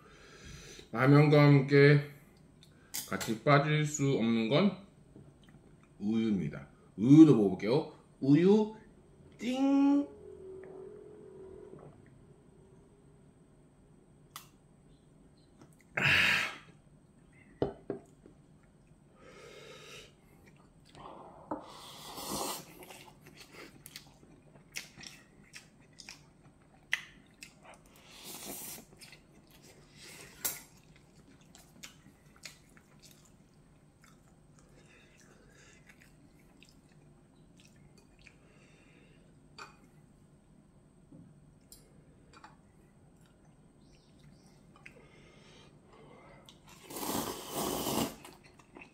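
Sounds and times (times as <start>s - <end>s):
chewing noodles: 22.3s - 38.5s.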